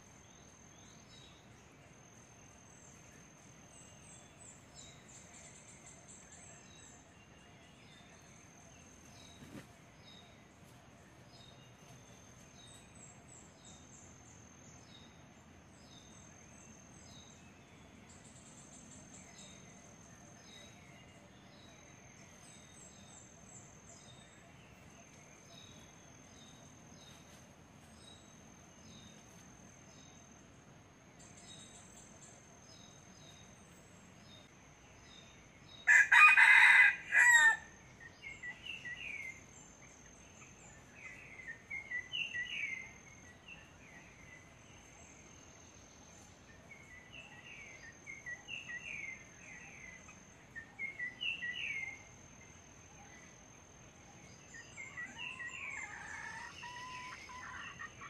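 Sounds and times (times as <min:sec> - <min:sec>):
rooster crowing: 0:35.8 - 0:37.7
small birds chirping: 0:38.0 - 0:58.0.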